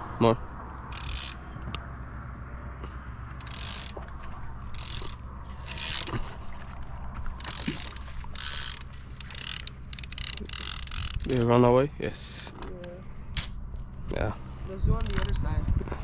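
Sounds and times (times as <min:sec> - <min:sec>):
fishing reel clicker ratcheting: 0:00.9 - 0:01.4, 0:03.3 - 0:04.0, 0:04.6 - 0:06.1, 0:07.4 - 0:11.5, 0:15.0 - 0:15.4.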